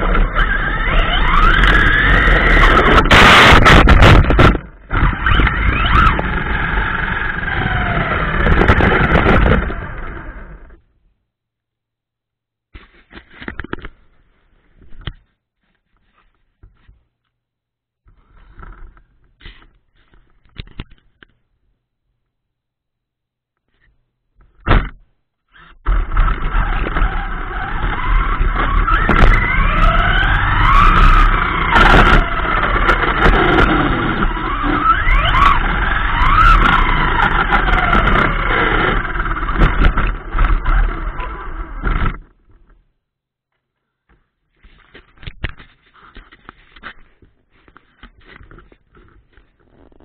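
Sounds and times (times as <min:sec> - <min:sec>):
drive and road noise: 0:00.0 - 0:10.8, 0:25.8 - 0:42.8
electric motor whine: 0:00.0 - 0:10.8, 0:26.0 - 0:42.1.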